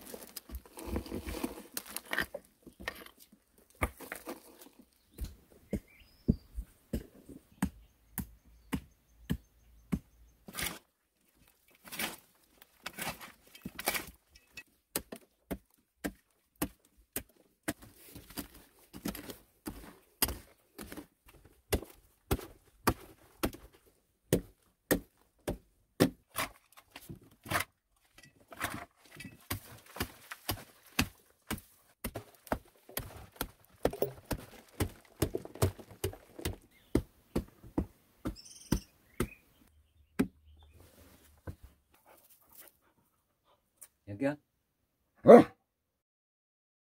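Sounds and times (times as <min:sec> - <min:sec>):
soil breaking loose: 0:32.1 - 0:36.9.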